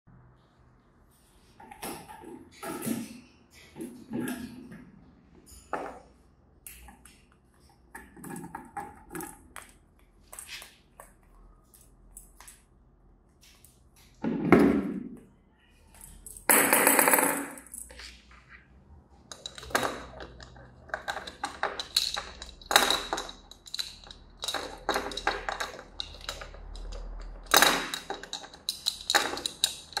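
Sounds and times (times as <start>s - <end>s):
parrot rattling plastic toys: 19.2s - 30.0s.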